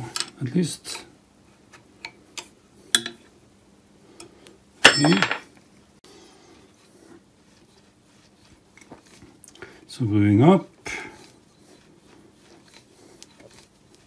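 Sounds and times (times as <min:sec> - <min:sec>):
spindle rubbing in bearings: 0:11.2 - 0:14.0.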